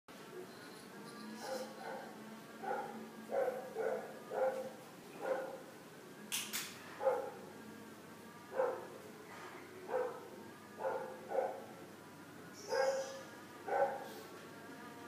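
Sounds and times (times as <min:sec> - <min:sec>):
dog barking: 0:01.4 - 0:05.6, 0:07.0 - 0:07.4, 0:08.6 - 0:08.9, 0:09.9 - 0:11.7, 0:12.7 - 0:14.2.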